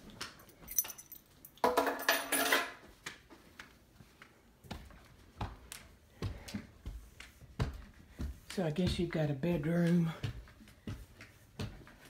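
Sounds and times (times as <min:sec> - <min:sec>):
clinking and rustling: 0:00.2 - 0:02.8
footsteps on carpeted stairs: 0:02.8 - 0:12.0
dull thuds of steps: 0:04.6 - 0:12.0.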